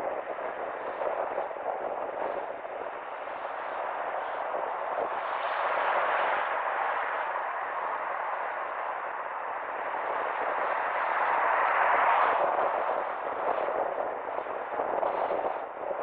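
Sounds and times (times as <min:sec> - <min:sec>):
car road and wind noise: 0:00.0 - 0:16.0.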